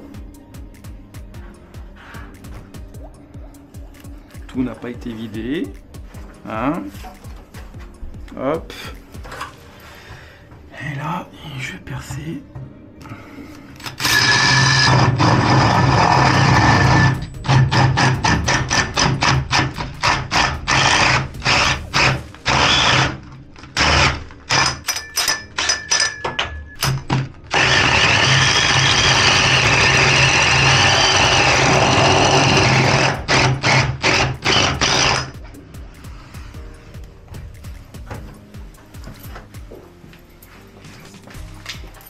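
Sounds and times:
electric drill boring into wall: 13.8 - 25.0, 26.8 - 35.4.

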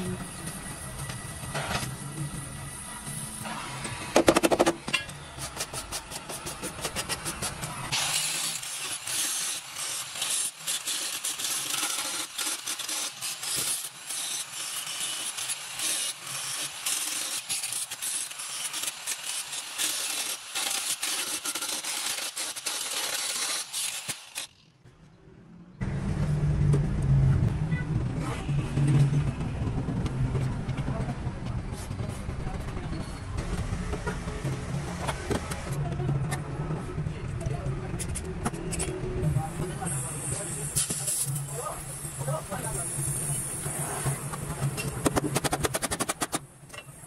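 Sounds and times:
wire brush scrubbing metal: 5.4 - 24.5
angle grinder grinding metal: 6.9 - 24.6.

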